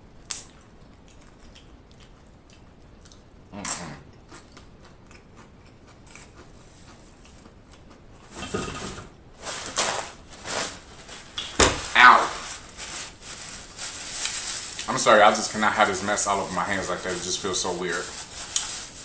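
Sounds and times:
chip crunching: 0.2s - 8.0s, 9.6s - 19.0s
faint chewing: 0.2s - 8.3s.

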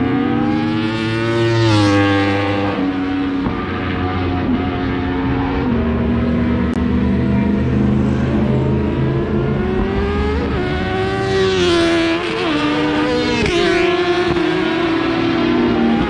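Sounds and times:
racing motorcycles at high revs: 0.0s - 16.0s.

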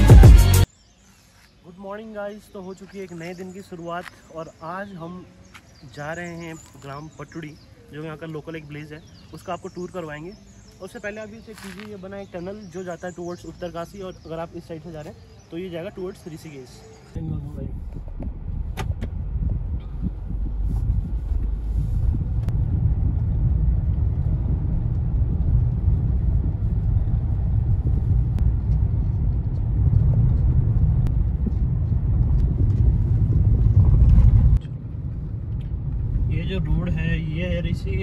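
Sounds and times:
moving vehicle rumble: 16.8s - 38.0s.

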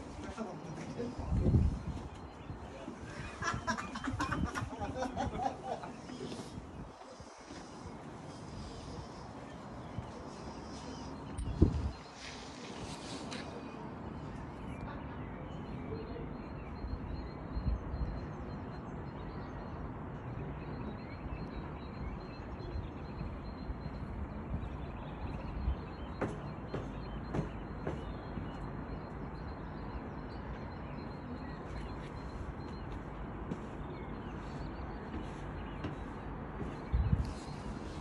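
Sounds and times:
wind blowing over microphone: 1.1s - 5.4s, 11.2s - 12.3s, 36.8s - 38.0s.

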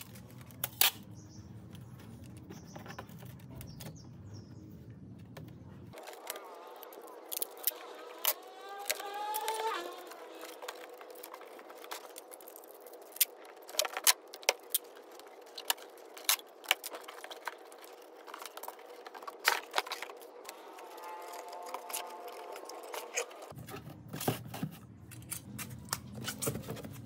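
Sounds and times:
packing tape screech: 6.0s - 14.8s, 19.4s - 23.5s.

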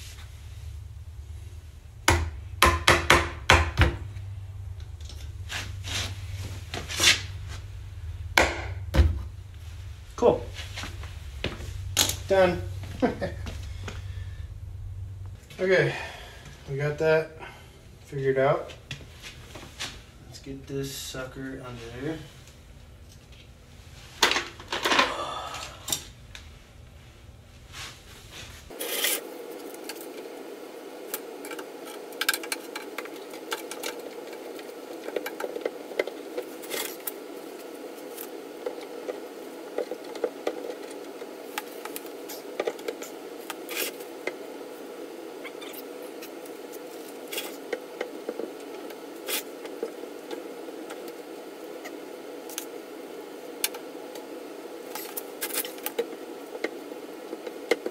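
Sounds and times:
steady background noise: 0.0s - 57.9s
metal scraping on concrete: 28.7s - 29.3s.

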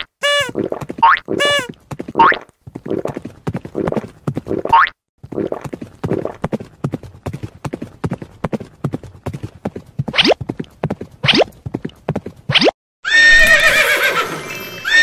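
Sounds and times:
cartoon hooves clip-clopping: 0.0s - 14.2s.

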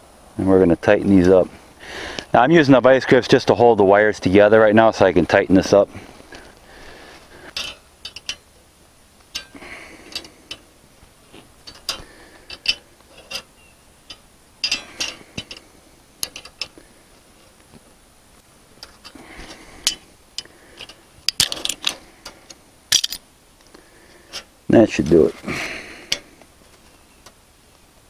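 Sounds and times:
wrench clicking on metal nuts: 7.6s - 8.4s, 11.7s - 13.5s, 14.1s - 15.6s, 16.2s - 16.8s.

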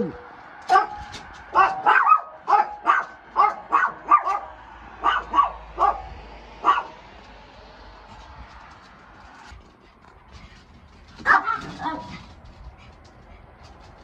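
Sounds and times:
small dog barking: 0.7s - 7.0s, 11.2s - 12.2s.

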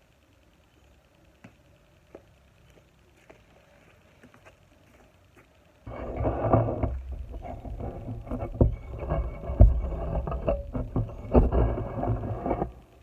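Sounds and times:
sharp thumps: 5.9s - 12.8s.

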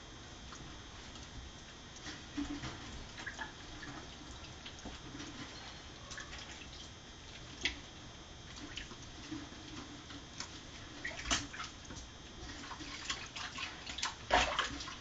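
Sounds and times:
water dripping in sink: 0.5s - 5.0s.

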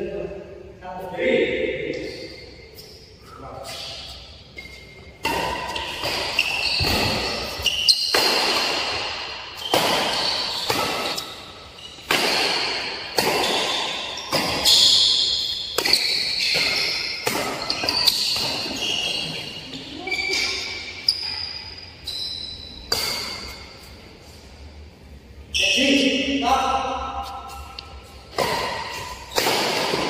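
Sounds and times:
shoes squeaking on court floor: 2.0s - 24.4s
racket hitting shuttlecock: 5.1s - 19.4s, 22.9s - 23.8s, 27.2s - 30.0s.

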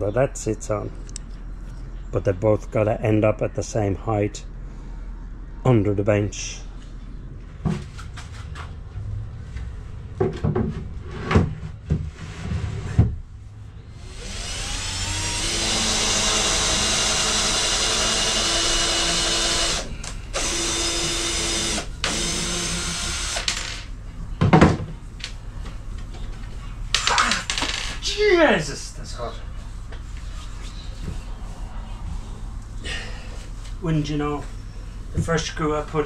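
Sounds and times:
cordless drill driving screws: 14.0s - 23.6s.

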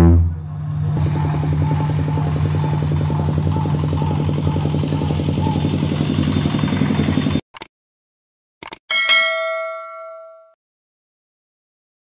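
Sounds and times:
engine running steadily: 0.0s - 7.4s.

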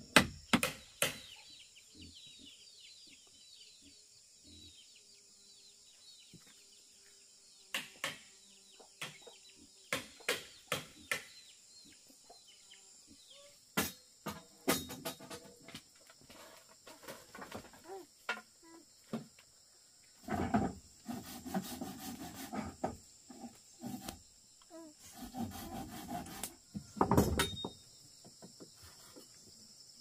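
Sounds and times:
high insect whine: 0.0s - 30.0s
tool knocking on bamboo: 0.1s - 1.2s, 26.7s - 28.7s.

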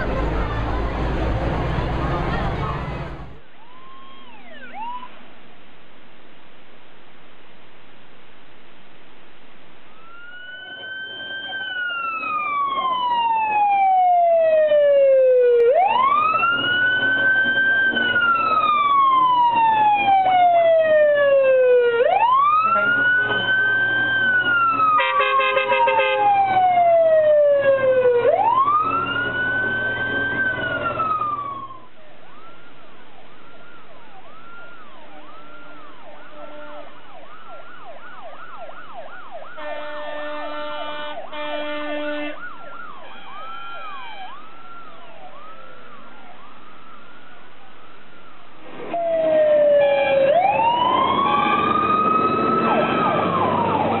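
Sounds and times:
fire engine siren wailing: 0.0s - 5.2s, 9.9s - 54.0s
fire engine engine: 0.0s - 5.6s, 9.7s - 54.0s
fast yelping siren: 3.6s - 5.1s, 10.0s - 54.0s
vehicle horn blasts: 25.0s - 26.2s, 39.6s - 42.4s.

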